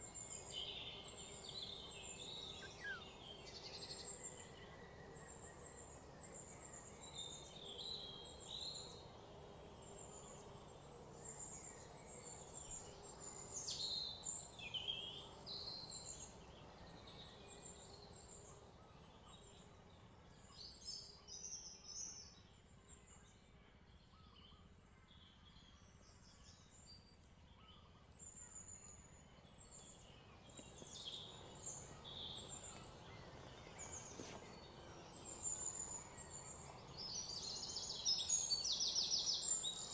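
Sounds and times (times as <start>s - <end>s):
faint outdoor background: 0.0s - 39.9s
birds chirping: 0.1s - 20.0s, 28.9s - 39.9s.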